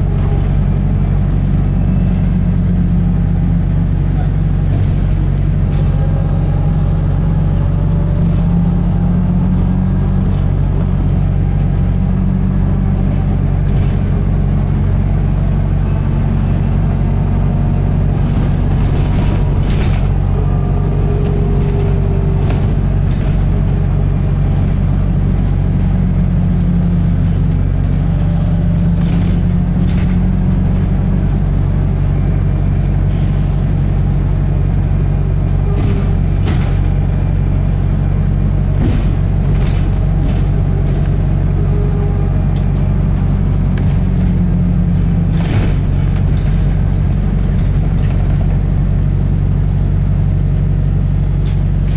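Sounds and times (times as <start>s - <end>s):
wavering hum: 0.0s - 33.1s
bus engine drone: 0.0s - 51.9s.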